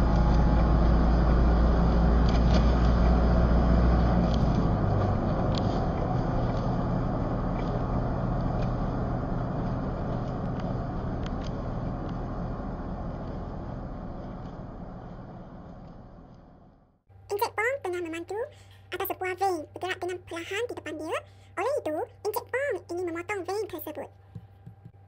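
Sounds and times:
car engine and road noise: 0.0 - 17.2.

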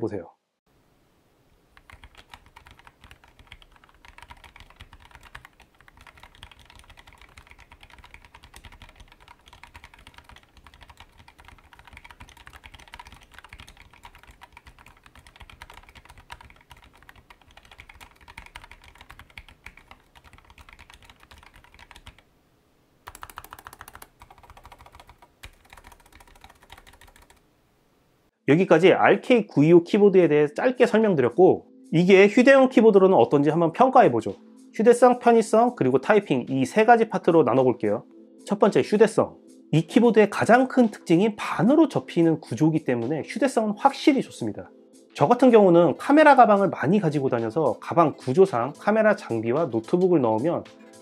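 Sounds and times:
mechanical keyboard typing: 1.8 - 22.2, 23.0 - 27.4.

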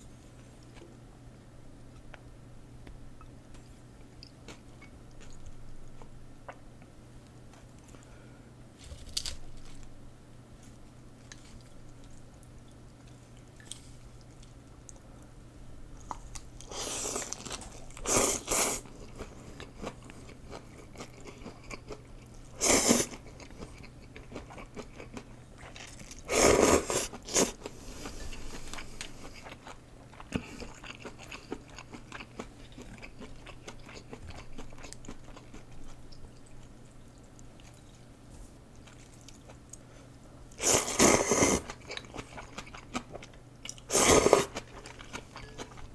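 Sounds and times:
person slurping noodles: 26.3 - 27.6, 40.6 - 41.7, 43.9 - 44.6.

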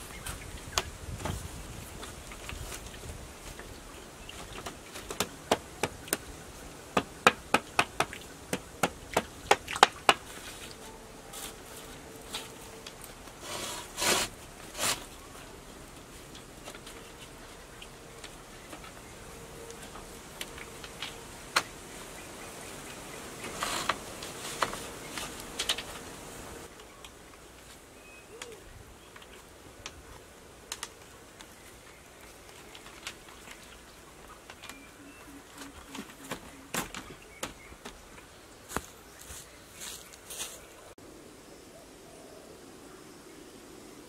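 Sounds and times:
bamboo slats knocking and clicking: 4.3 - 6.3, 6.9 - 10.4, 23.4 - 26.1, 35.5 - 38.0
knocks on bamboo slats: 4.6 - 6.2, 6.9 - 10.4.

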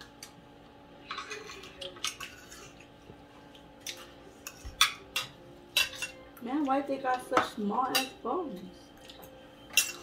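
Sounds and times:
cutlery clinking on plates: 1.0 - 2.9, 3.8 - 6.2, 9.0 - 10.0.

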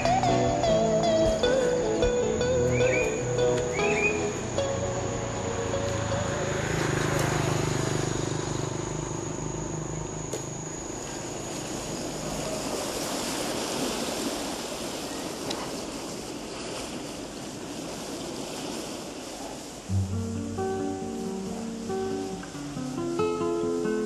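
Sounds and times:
steady rushing outdoor noise: 0.0 - 24.0
low music chord: 19.9 - 22.9.

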